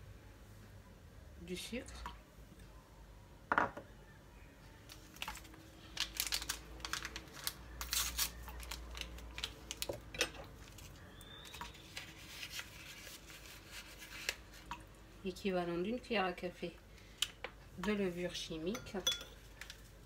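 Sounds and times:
paper sachet rustling: 4.9s - 9.9s, 10.6s - 14.7s.

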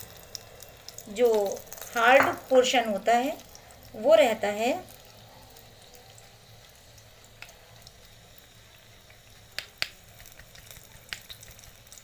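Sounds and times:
liquid trickling: 0.0s - 12.0s
oil sizzling in a pan: 0.0s - 12.0s
sharp crackles: 8.8s - 12.0s.

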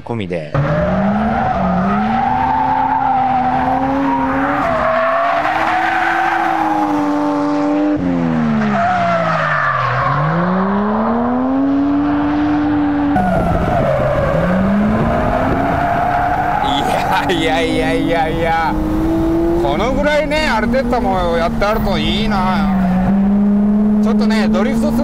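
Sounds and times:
tyre squeal: 0.6s - 7.1s, 13.2s - 20.7s
car engine revving: 0.6s - 25.0s.

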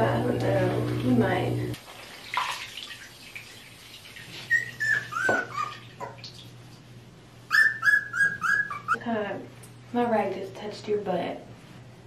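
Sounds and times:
puppy whining: 4.4s - 5.9s, 7.5s - 9.0s.

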